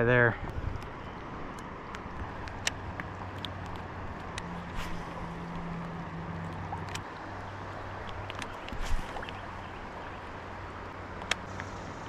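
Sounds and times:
river water rushing: 0.4 - 12.0
sharp small clicks and taps: 1.5 - 4.5, 8.0 - 9.4, 11.2 - 11.8.

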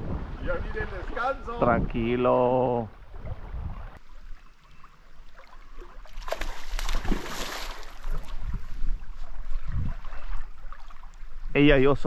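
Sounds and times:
fish splashing in river: 5.3 - 8.5.

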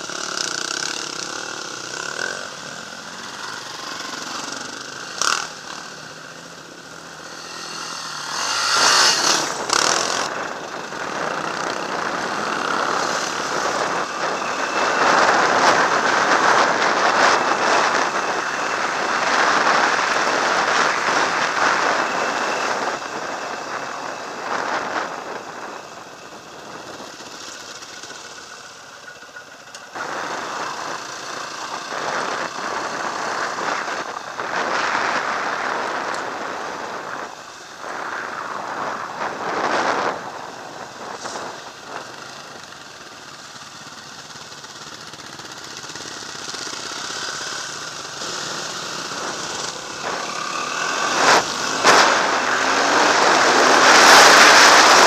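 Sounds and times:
dirt bike engine running: 0.0 - 55.0
wind noise on microphone: 8.3 - 27.2, 29.9 - 42.7, 47.3 - 55.0.

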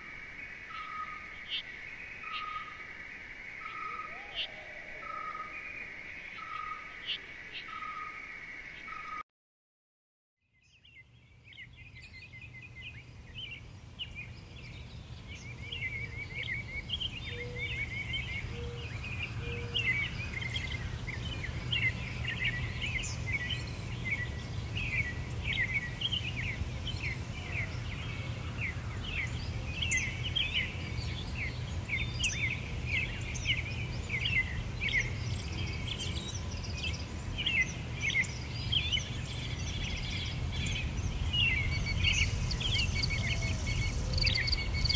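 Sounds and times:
small birds chirping: 0.0 - 9.2, 10.5 - 44.9
steady low rumble: 29.1 - 44.9.

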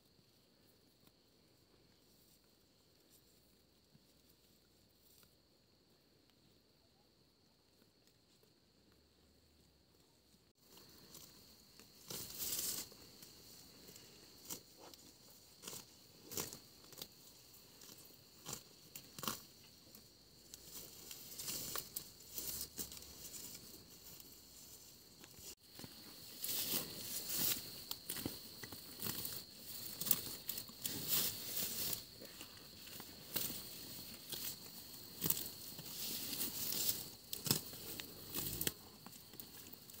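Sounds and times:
grass being torn off: 35.2 - 38.8.

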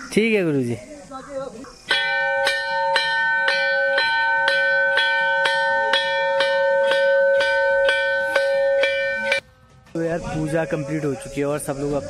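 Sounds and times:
brass bell ringing: 1.9 - 9.4.

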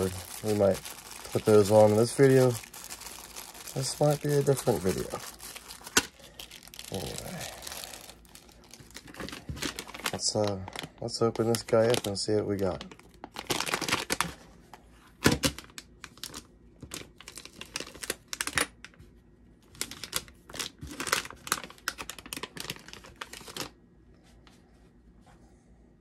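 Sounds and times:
plastic bag crackling: 0.0 - 14.3, 15.5 - 18.6.

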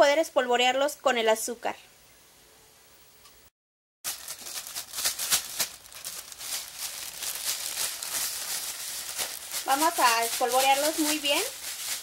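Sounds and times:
plastic bag crinkling: 4.1 - 12.0.

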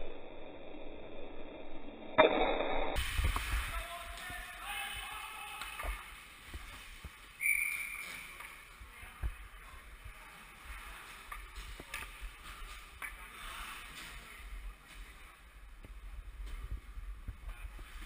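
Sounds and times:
hockey sticks and puck clacking: 3.3 - 8.8, 10.6 - 16.8
skate blades scraping ice: 10.8 - 15.2.

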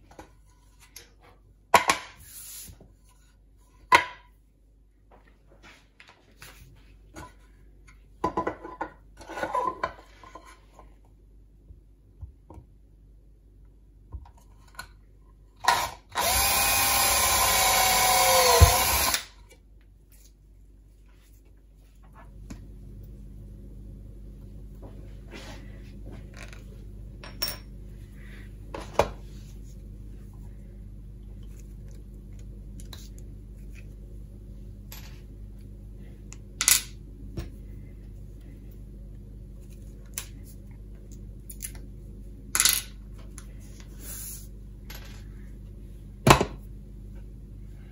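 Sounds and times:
power drill drilling into plastic: 15.7 - 19.3.

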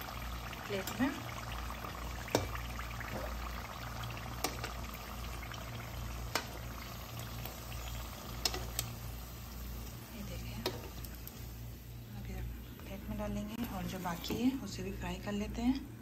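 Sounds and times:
food sizzling in hot oil: 0.0 - 15.2
metal spoon clicking on pan: 4.4 - 4.7, 6.3 - 6.6, 8.4 - 8.9, 10.6 - 11.1.

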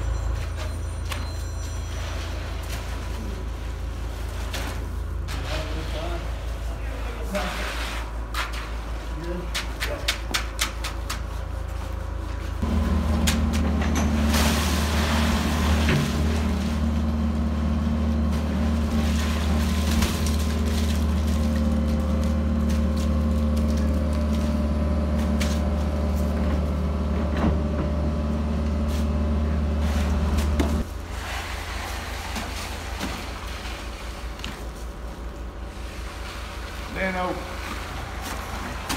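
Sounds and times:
excavator diesel engine: 12.0 - 31.0.

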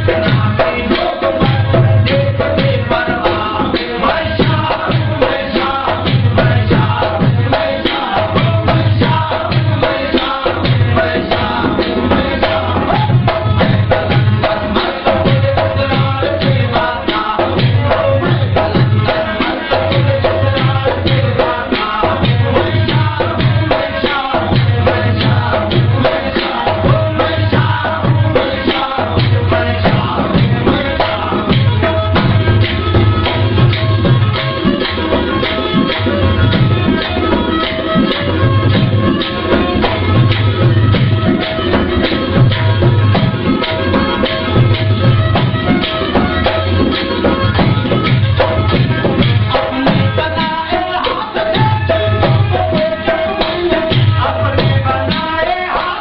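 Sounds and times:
man singing: 0.0 - 33.4, 48.6 - 56.0.

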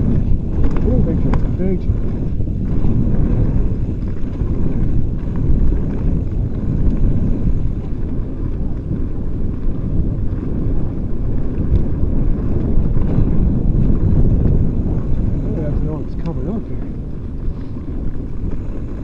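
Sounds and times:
bike tyres rolling on dirt: 0.0 - 19.0
wind rumbling over microphone: 0.0 - 19.0.

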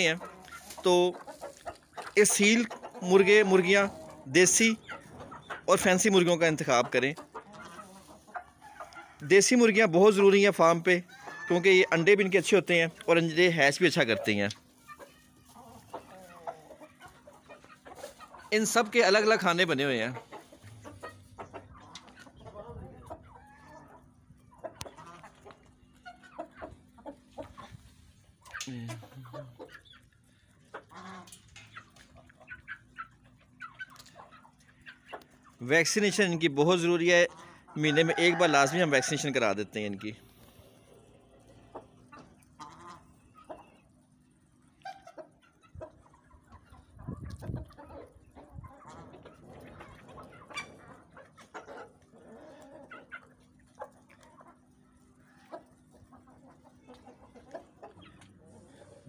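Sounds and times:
high chicken calls: 0.0 - 12.8
chickens clucking: 0.0 - 59.0.

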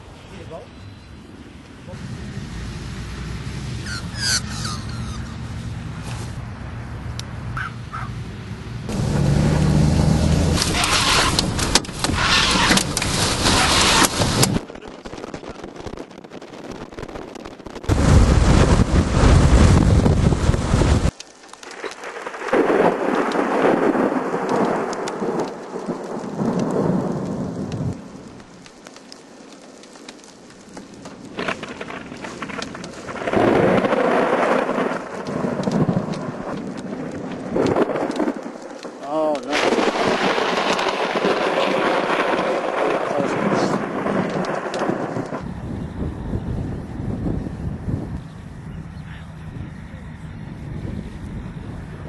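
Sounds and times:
thunder rumbling: 1.2 - 52.0
rain falling: 1.6 - 48.6
wind buffeting microphone: 10.4 - 21.2, 39.6 - 52.0.

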